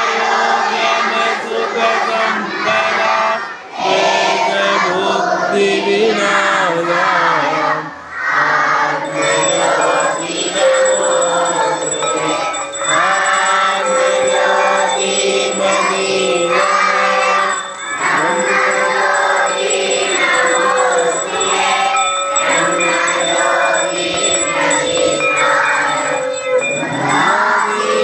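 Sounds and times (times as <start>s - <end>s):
group singing devotional song: 0.0s - 28.0s
held drone tones: 9.0s - 28.0s.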